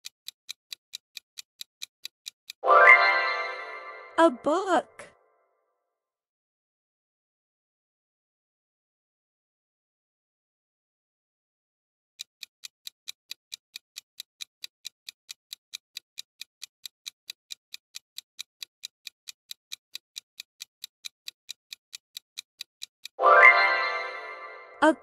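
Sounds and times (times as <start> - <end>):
clock ticking: 0.0 - 4.4, 12.2 - 25.0.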